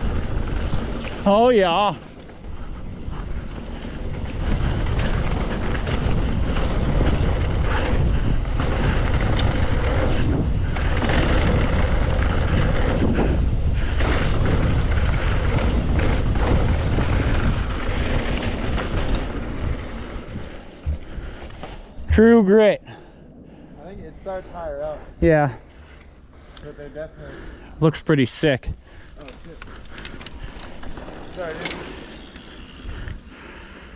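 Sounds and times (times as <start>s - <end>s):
bike tyres rattling on dirt: 0.0s - 22.2s, 28.3s - 33.9s
wind buffeting microphone: 0.0s - 22.2s, 32.1s - 33.7s.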